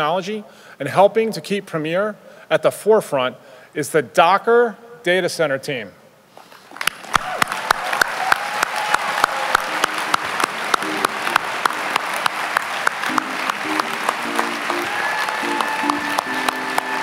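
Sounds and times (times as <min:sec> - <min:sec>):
audience applauding: 0:06.6 - 0:17.0
sharp close hand claps: 0:06.7 - 0:17.0.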